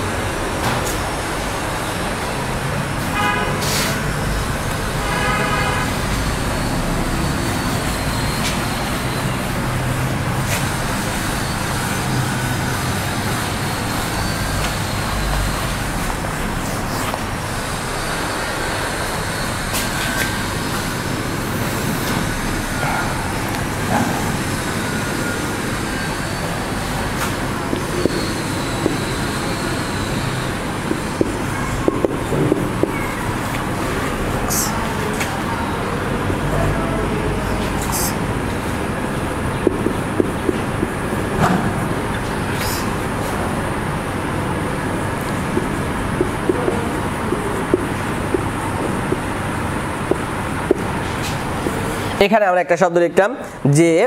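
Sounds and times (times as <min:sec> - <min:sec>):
road traffic: 0:00.0 - 0:54.0
vehicle horn toots: 0:03.0 - 0:04.2, 0:05.0 - 0:06.8.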